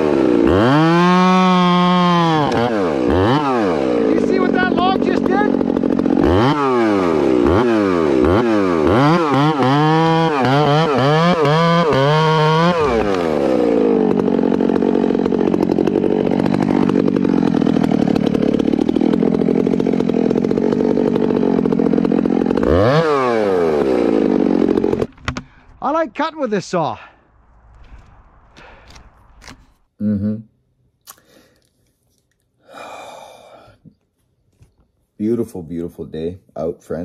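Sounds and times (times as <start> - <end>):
chainsaw cutting log: 0.0 - 25.9, 27.6 - 29.9.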